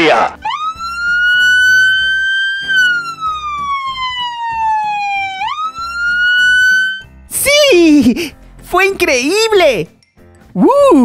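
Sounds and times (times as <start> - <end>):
police car siren wailing: 0.4 - 7.1.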